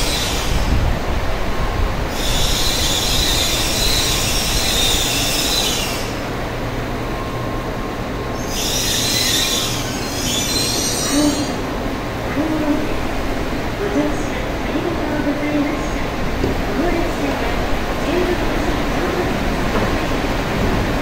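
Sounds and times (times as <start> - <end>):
train braking rumble: 0.0 - 21.0
high-pitched brake squeal: 2.1 - 6.2, 8.4 - 11.6.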